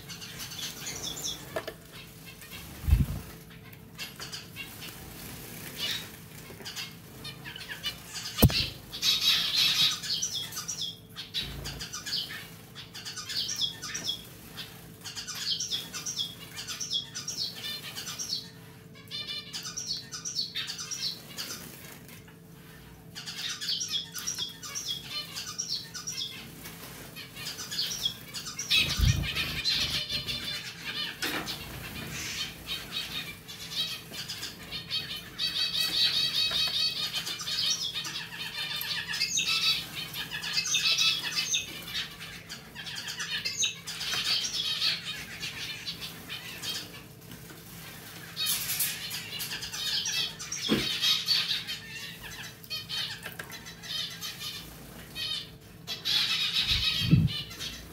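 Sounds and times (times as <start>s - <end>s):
sharp knock: 8.4s - 8.8s.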